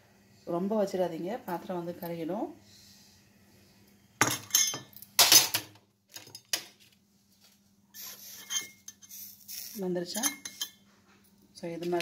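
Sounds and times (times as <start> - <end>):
metal vessel and tongs clattering: 4.2 - 6.6, 8.4 - 9.1, 10.1 - 10.8.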